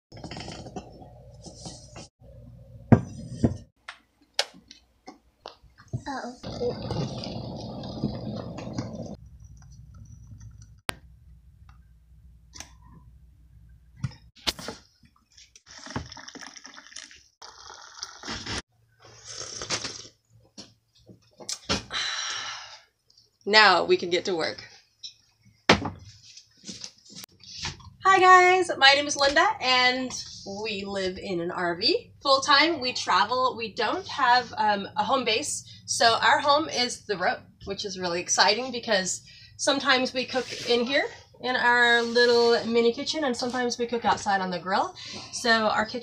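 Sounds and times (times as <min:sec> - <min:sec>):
coffee pouring into a mug: 0:15.7 - 0:18.3
person sipping: 0:15.7 - 0:20.2.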